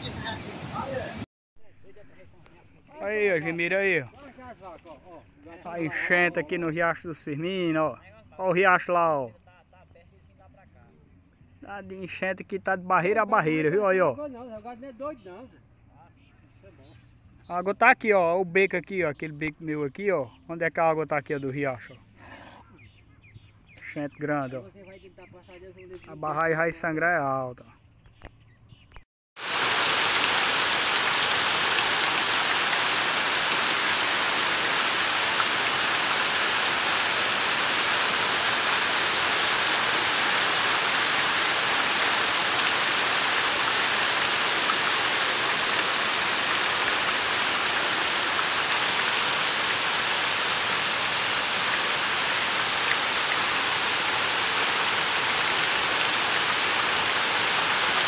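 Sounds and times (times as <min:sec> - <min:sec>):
heavy rain on trees: 0:00.0 - 0:01.3, 0:29.4 - 0:58.0.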